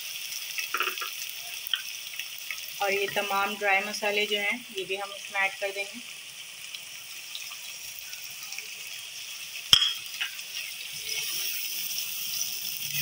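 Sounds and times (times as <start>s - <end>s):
oil sizzling in a pot: 0.0s - 13.0s.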